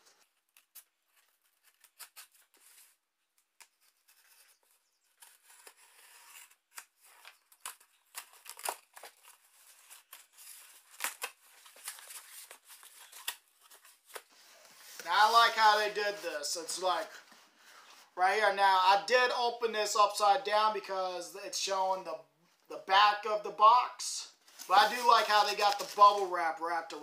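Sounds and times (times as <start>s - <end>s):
craft knife cutting box tape: 5.1s - 13.4s.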